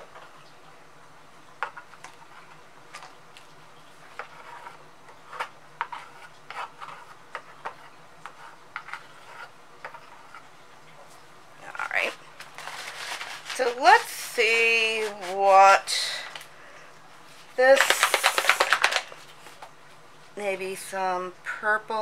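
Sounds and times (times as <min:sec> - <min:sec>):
faint steady hum: 0:00.0 - 0:22.0
stir stick tapping and scraping: 0:01.6 - 0:11.2, 0:11.8 - 0:16.5, 0:17.3 - 0:19.7.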